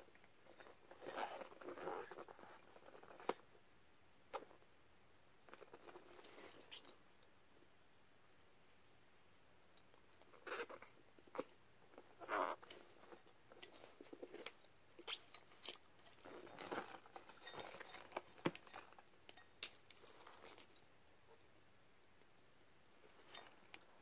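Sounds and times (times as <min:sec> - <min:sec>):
rustling and crinkling: 0:00.0 - 0:03.6, 0:05.4 - 0:07.3, 0:09.8 - 0:21.5, 0:22.9 - 0:24.0.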